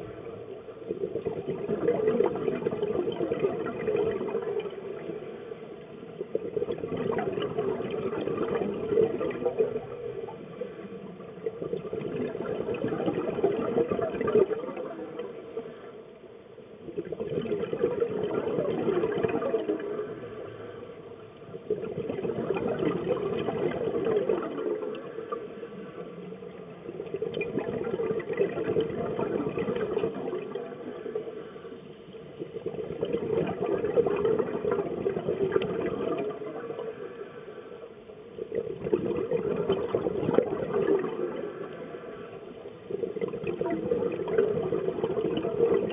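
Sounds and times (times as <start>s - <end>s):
regulator bubbling exhalations: 6.2s - 15.8s, 16.9s - 21.0s, 21.6s - 31.4s, 32.4s - 37.4s, 38.4s - 45.9s.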